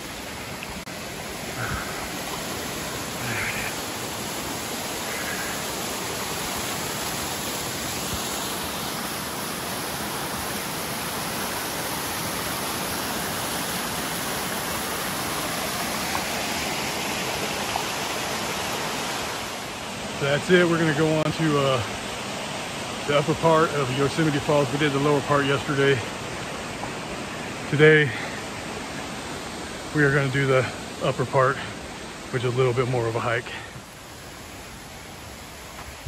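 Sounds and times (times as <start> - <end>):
waterfall pouring over rock: 0.0 - 26.0.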